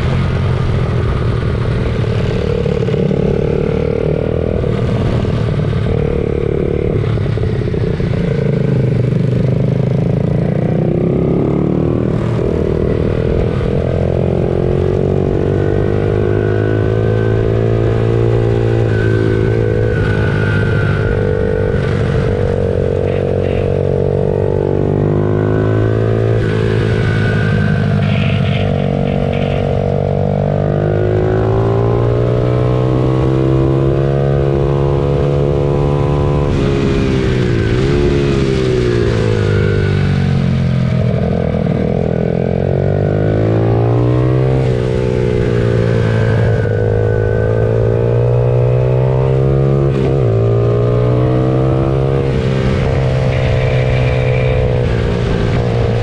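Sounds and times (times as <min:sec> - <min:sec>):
pit bike engines revving: 0:00.0 - 0:56.0.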